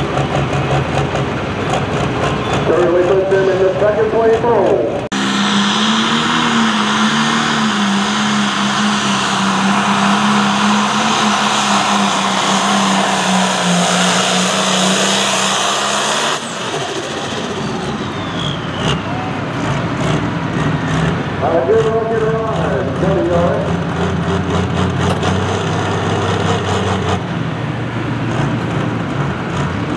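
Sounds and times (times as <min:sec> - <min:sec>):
tractor diesel engine at full power: 0:00.0 - 0:29.9.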